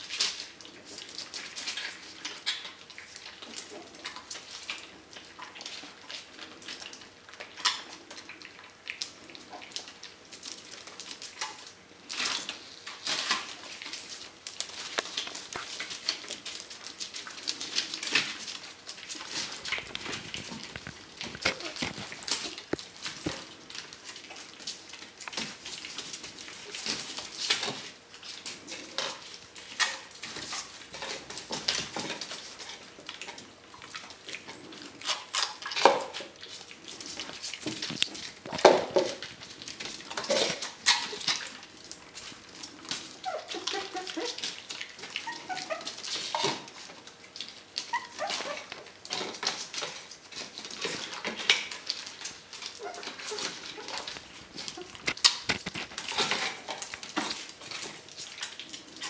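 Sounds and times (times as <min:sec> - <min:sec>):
paws rustling newspaper: 0:00.0 - 0:59.0
puppies crunching kibble: 0:00.0 - 0:59.0
puppy whimpers: 0:21.4 - 0:22.6, 0:43.1 - 0:46.6, 0:47.8 - 0:48.9, 0:52.6 - 0:55.2.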